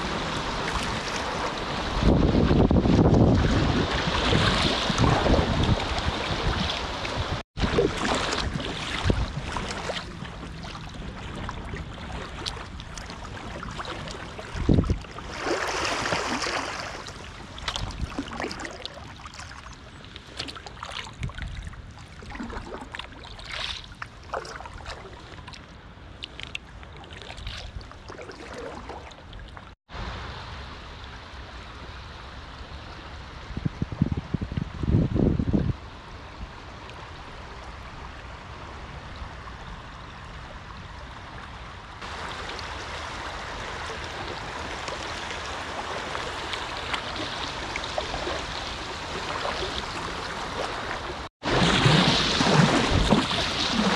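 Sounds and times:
wind buffeting microphone: 0:00.0 - 0:16.4, 0:32.8 - 0:53.9
paddle splashes: 0:00.0 - 0:30.1, 0:41.3 - 0:53.9
river rushing: 0:15.3 - 0:17.3, 0:42.0 - 0:53.9.

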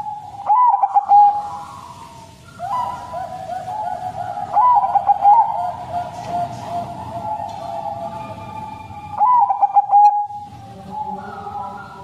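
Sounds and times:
dove cooing: 0:00.0 - 0:12.0.

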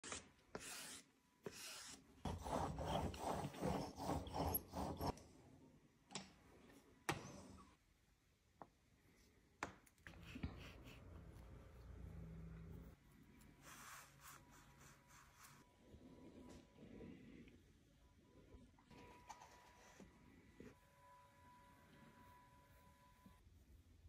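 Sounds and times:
tool rubbing across clay: 0:00.1 - 0:05.2.

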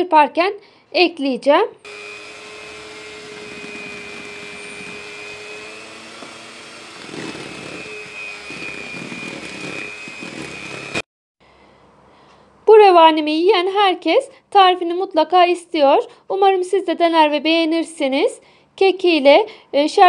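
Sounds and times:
electric mixer whining: 0:01.8 - 0:11.1.

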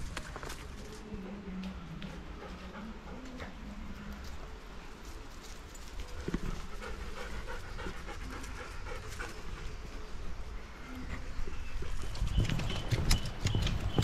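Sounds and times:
dog panting hard: 0:02.1 - 0:03.6, 0:06.5 - 0:10.1.

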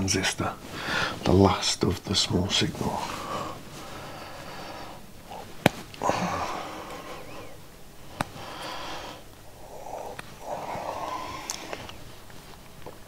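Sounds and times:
man breathing through nose: 0:00.7 - 0:01.2, 0:03.1 - 0:12.1.

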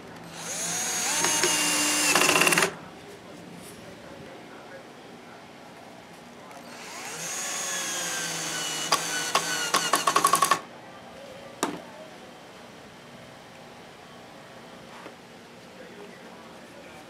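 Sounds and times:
cordless drill motor whine: 0:00.2 - 0:02.7, 0:06.6 - 0:10.6
drill clutch clicking: 0:00.5 - 0:02.8, 0:08.0 - 0:10.6.

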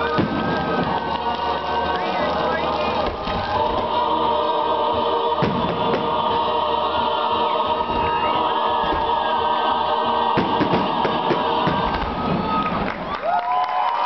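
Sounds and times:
firework bangs: 0:00.0 - 0:04.1, 0:05.0 - 0:06.6, 0:10.2 - 0:13.2
choir singing sustained chords: 0:00.0 - 0:12.6.

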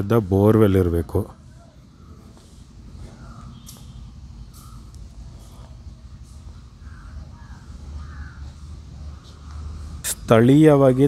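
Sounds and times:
crows cawing: 0:03.0 - 0:03.8, 0:04.5 - 0:05.8, 0:06.5 - 0:10.0.

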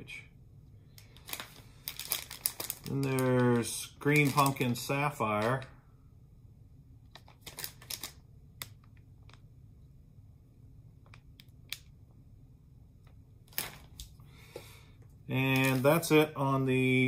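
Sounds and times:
low room hum: 0:00.0 - 0:17.0
plastic package crinkling: 0:00.9 - 0:05.7, 0:07.1 - 0:09.5, 0:13.4 - 0:14.2, 0:15.4 - 0:16.1.

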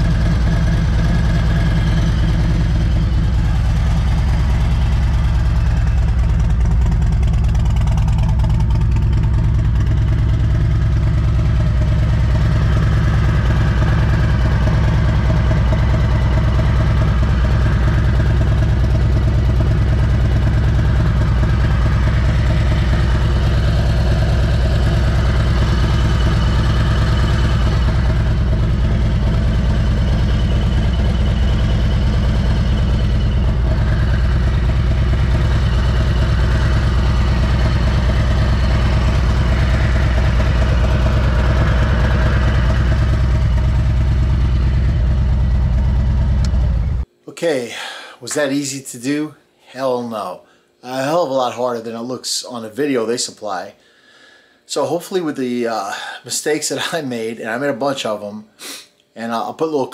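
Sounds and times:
motorcycle engine idling: 0:00.0 - 0:47.1.

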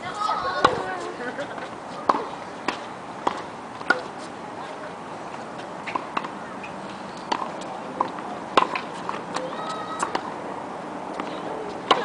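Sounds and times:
tennis ball strikes: 0:02.0 - 0:04.2, 0:05.8 - 0:10.4, 0:11.1 - 0:12.0.

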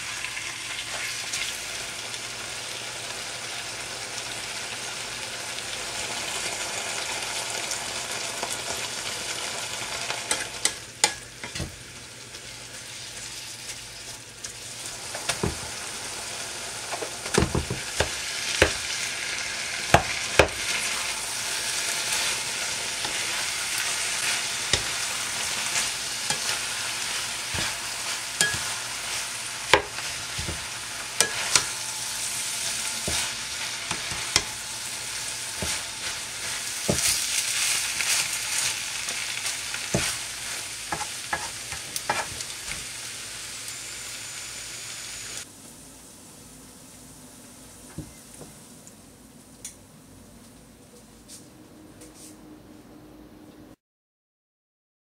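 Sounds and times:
meat sizzling in a wok: 0:00.0 - 0:48.7
wooden spatula scraping a pan: 0:21.7 - 0:39.2, 0:39.9 - 0:42.5.

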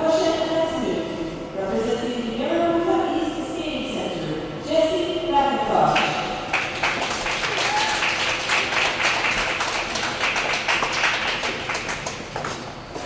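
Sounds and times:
audience applause: 0:06.5 - 0:12.2.

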